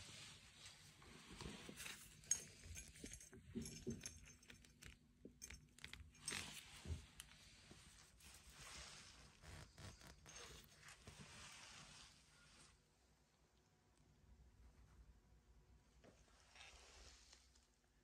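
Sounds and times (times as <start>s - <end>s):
metal tool clinking and rattling: 1.8s - 7.0s.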